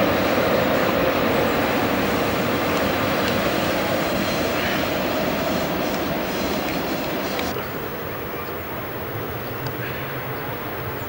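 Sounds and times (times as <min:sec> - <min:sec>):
train running: 0:00.0 - 0:07.6.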